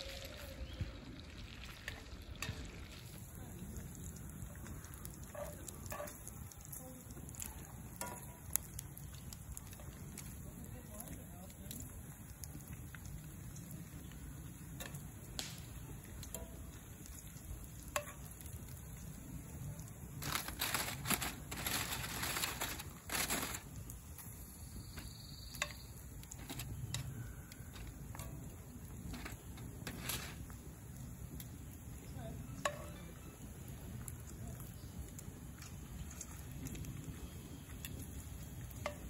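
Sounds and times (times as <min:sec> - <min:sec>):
aluminium foil crinkling: 0:00.0 - 0:31.6, 0:34.0 - 0:39.0
bacon sizzling in a skillet: 0:00.0 - 0:39.0
metal tongs clicking on pan: 0:17.9 - 0:18.5, 0:32.6 - 0:33.0.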